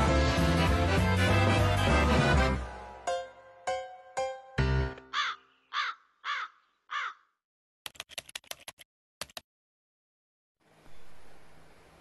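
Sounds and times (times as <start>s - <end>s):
crow cawing: 5.1s - 7.3s.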